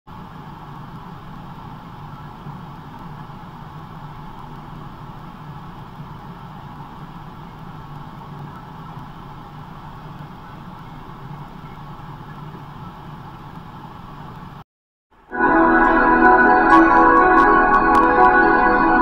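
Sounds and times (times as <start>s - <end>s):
tape hiss: 0.1s - 14.6s, 15.2s - 19.0s.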